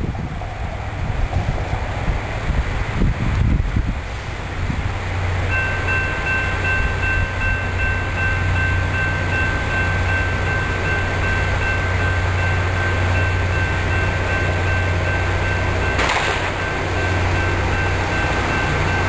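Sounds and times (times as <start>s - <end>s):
rail grinder diesel drone: 0.0s - 19.0s
wash of noise: 15.2s - 18.9s.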